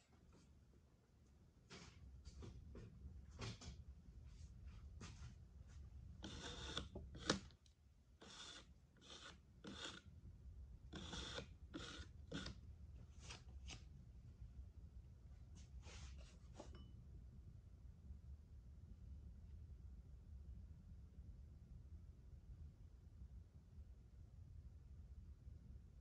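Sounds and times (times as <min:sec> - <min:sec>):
metal rib scraping clay: 0:06.2 - 0:07.5, 0:08.2 - 0:10.1, 0:10.9 - 0:12.6.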